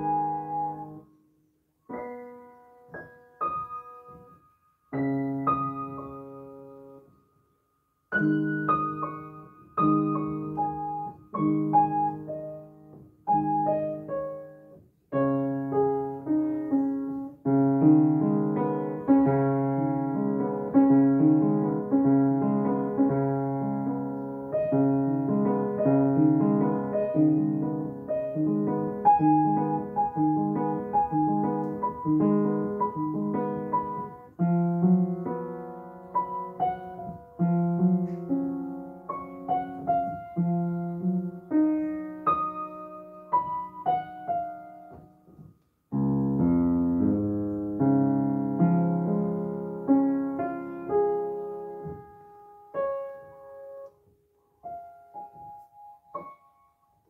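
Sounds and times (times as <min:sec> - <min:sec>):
piano chords: 0:00.0 - 0:57.0.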